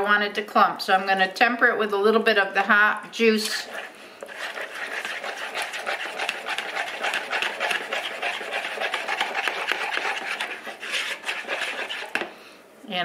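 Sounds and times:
whisk scraping plastic bowl: 3.2 - 12.3.

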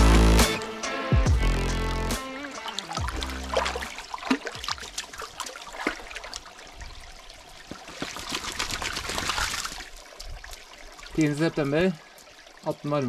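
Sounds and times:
dog lapping water: 2.6 - 6.5, 7.7 - 10.0
dog splashing in water: 2.6 - 6.5, 7.6 - 10.6.

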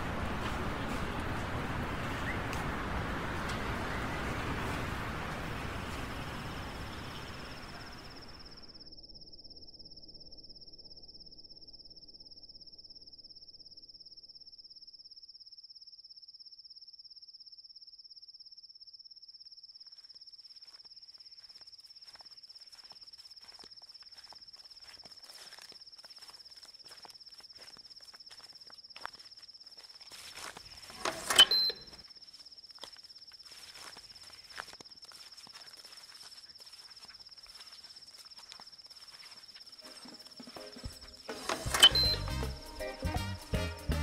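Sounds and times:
footsteps through dry leaves: 0.0 - 7.9, 20.6 - 41.7
insects trilling: 0.0 - 42.0.

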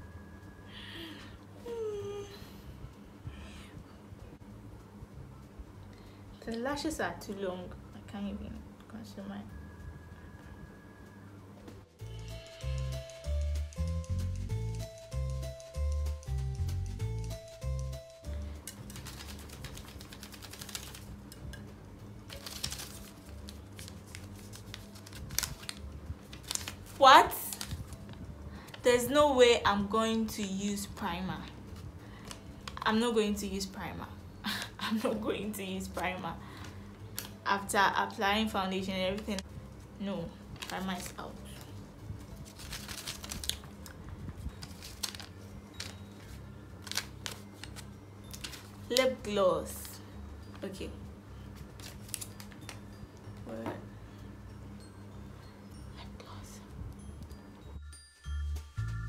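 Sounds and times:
low steady hum: 0.0 - 59.0
paper slips rattling in cup: 18.4 - 21.5, 22.3 - 28.1, 40.5 - 50.0, 51.7 - 52.8.

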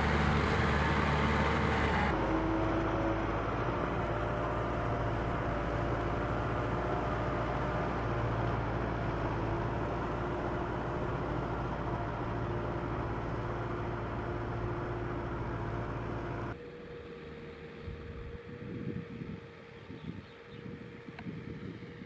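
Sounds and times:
tractor engine running: 0.0 - 19.7
wind buffeting microphone: 17.8 - 22.0.

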